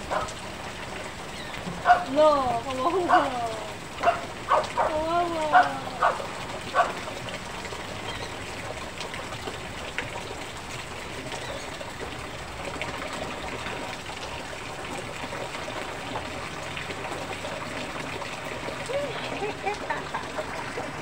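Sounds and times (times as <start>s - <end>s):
steady rain falling: 0.0s - 21.0s
water pouring down in streams: 0.0s - 21.0s.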